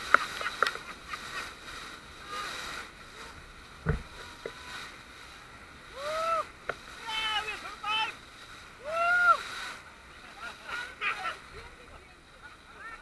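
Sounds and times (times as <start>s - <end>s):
water splashing along boat: 0.0s - 13.0s
heavy thump: 3.8s - 4.2s.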